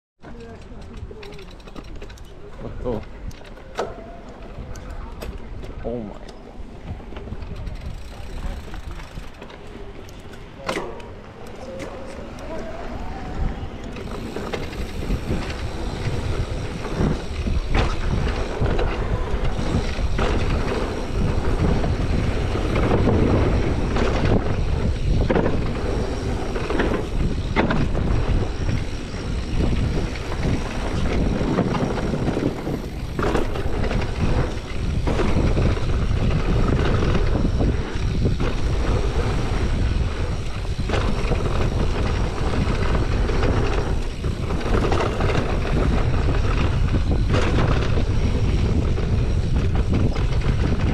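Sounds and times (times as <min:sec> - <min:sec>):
bike rattling over bumps: 0:00.2 - 0:50.9
tyres rolling over dirt: 0:06.6 - 0:50.9
wind on microphone: 0:11.1 - 0:50.9.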